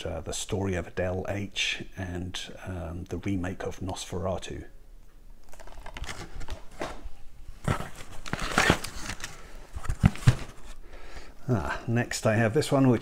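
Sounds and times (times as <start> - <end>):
plastic wrap rustling: 5.4 - 10.8.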